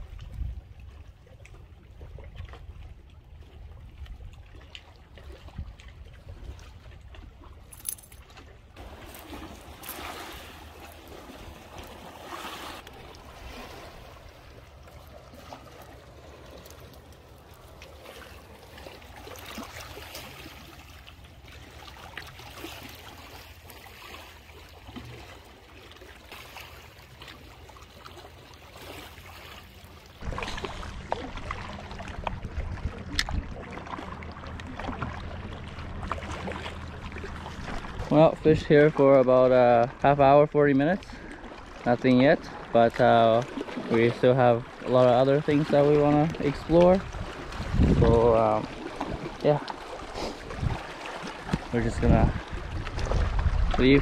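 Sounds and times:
small waves lapping on rocks: 0.0 - 54.0.

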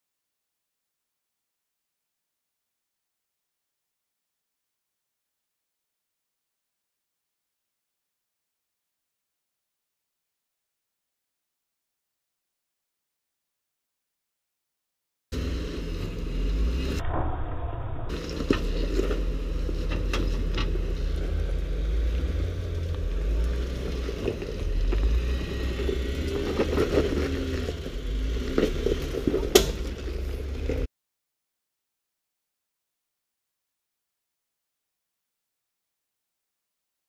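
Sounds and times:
car engine running low: 15.3 - 30.9
sharp crack: 16.8 - 20.8, 29.2 - 30.2
tyres crunching on stone: 18.1 - 30.9.

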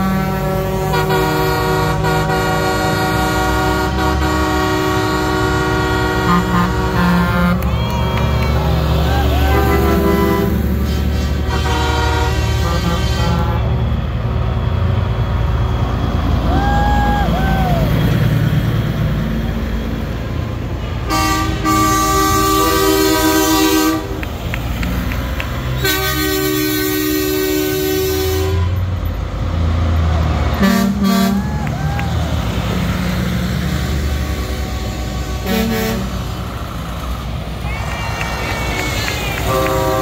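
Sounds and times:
truck air horn blasts: 0.0 - 7.7, 9.4 - 14.0, 20.7 - 24.3, 25.6 - 29.1, 30.6 - 31.5, 33.5 - 36.5, 38.8 - 40.0
trucks rumbling past: 0.0 - 40.0.

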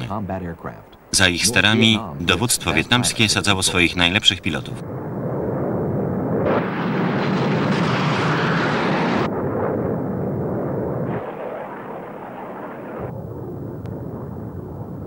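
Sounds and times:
jet engine rushing: 1.2 - 13.1.

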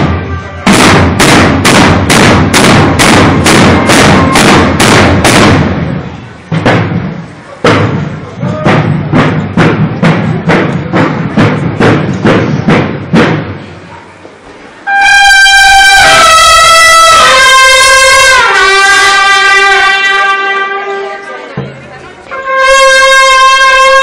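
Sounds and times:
bugles sounding a call: 0.0 - 5.3, 14.9 - 21.3, 22.3 - 24.0
procession drums beating: 0.0 - 13.7.

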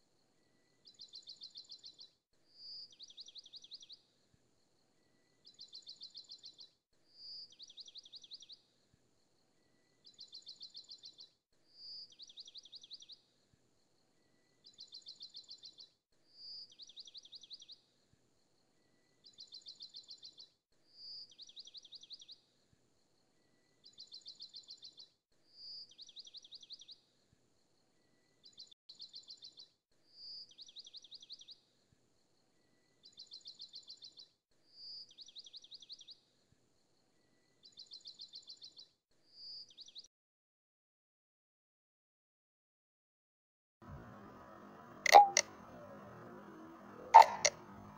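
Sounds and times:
bird-like chirping trills: 44.3 - 47.9.

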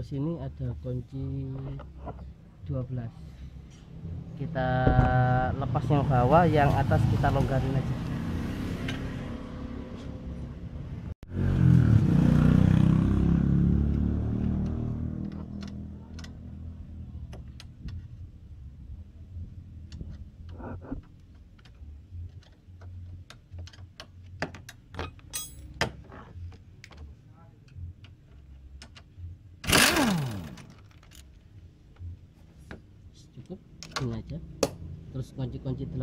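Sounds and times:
vehicle engine rumble: 0.0 - 36.0
spanner clicking on metal bolts: 19.8 - 26.0.

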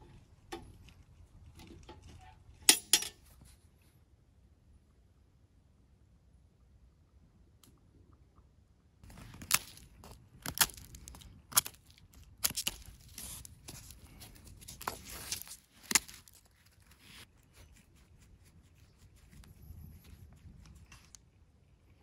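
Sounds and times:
dry leaves rustling and crackling: 9.0 - 17.3
twigs cracking: 9.0 - 17.3.

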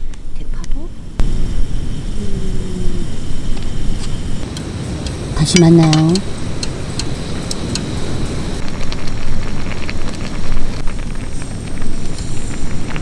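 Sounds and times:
gas stove burner running: 0.1 - 13.0
stew bubbling and popping: 8.6 - 13.0.

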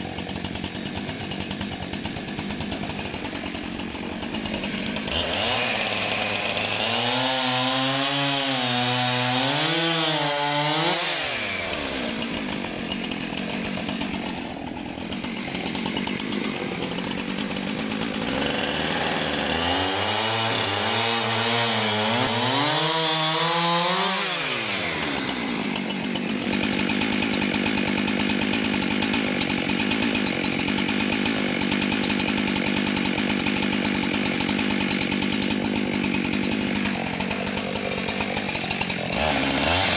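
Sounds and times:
chainsaw cutting logs: 0.0 - 39.9.

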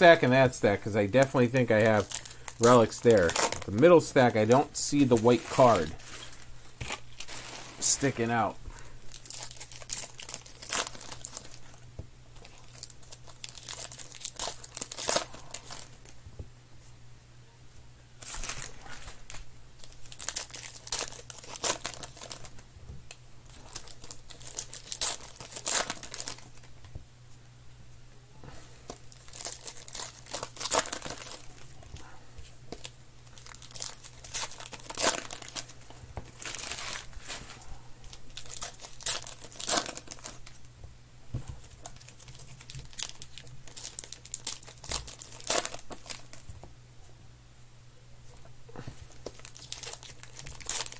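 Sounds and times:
foil wrappers tearing and crinkling: 0.1 - 8.4, 9.1 - 11.8, 12.4 - 16.1, 18.2 - 22.6, 23.4 - 26.7, 29.1 - 32.0, 32.7 - 37.4, 38.1 - 40.6, 41.6 - 46.4, 49.1 - 50.9.

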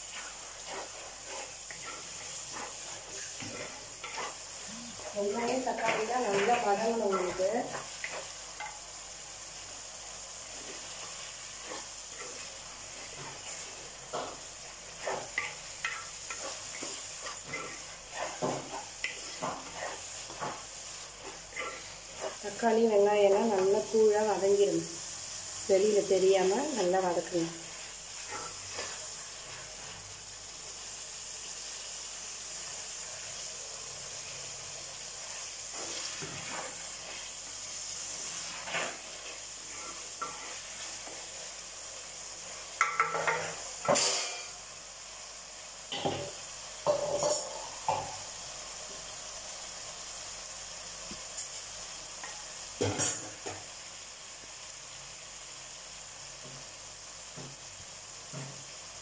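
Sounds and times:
wooden spatula scraping a pot: 0.0 - 8.7, 10.5 - 24.4, 38.2 - 41.2
vegetables sizzling in oil: 0.0 - 59.0.

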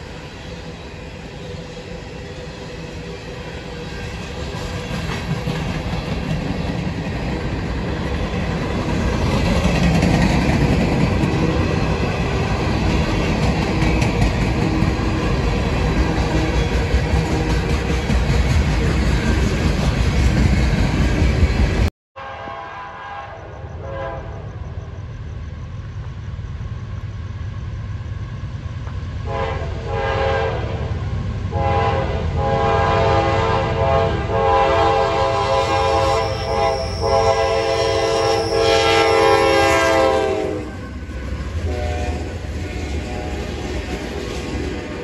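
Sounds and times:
locomotive engine and rail rumble: 0.0 - 45.0
locomotive air horn: 22.2 - 24.5, 29.3 - 30.9, 31.5 - 40.8, 41.6 - 42.4.

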